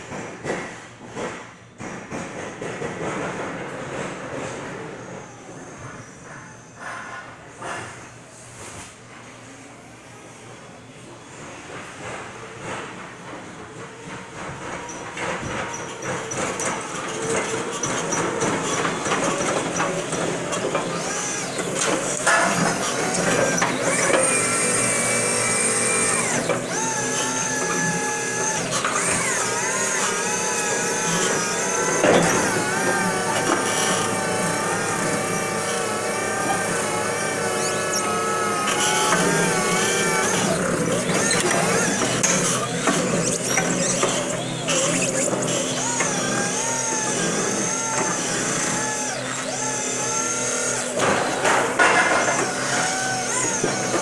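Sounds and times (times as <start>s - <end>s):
electric truck motors whining: 14.3s - 54.0s.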